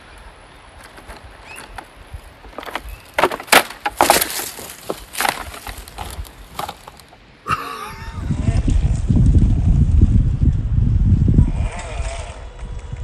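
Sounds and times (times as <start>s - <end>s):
dry twigs cracking and crunching: 0.8s - 7.2s.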